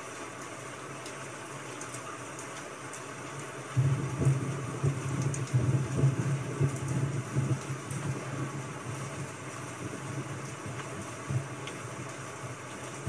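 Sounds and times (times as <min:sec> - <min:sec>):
steady hiss with crackles: 0:00.0 - 0:13.0.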